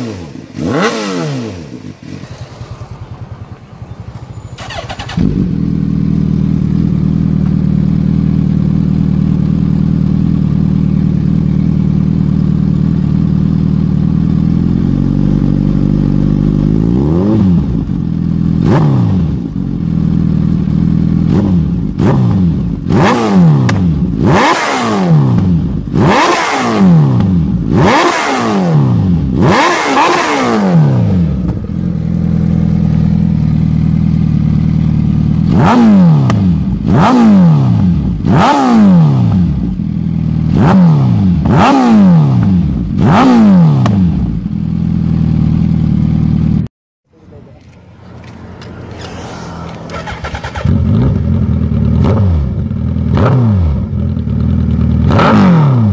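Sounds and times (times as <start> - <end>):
motorcycle throttle blips: 0.0 - 55.9
motorcycle engine idling: 1.6 - 16.9, 19.3 - 22.9, 31.1 - 35.7, 39.4 - 40.6, 44.1 - 53.2, 53.8 - 55.1.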